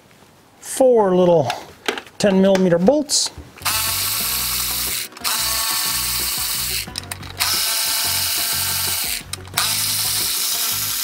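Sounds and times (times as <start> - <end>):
cordless ratchet running: 3.6 - 11.0.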